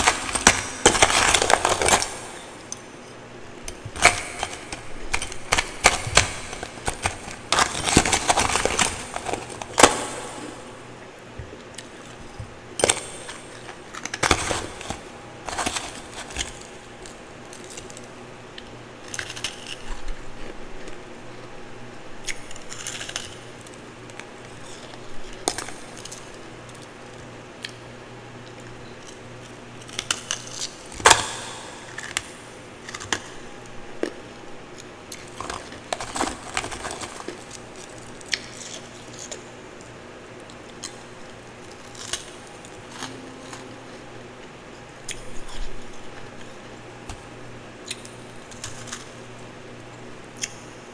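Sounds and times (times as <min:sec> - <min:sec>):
ice crunching while chewed: 0:00.0 - 0:10.6, 0:11.6 - 0:21.5, 0:22.2 - 0:27.8, 0:34.0 - 0:44.0, 0:44.9 - 0:49.3.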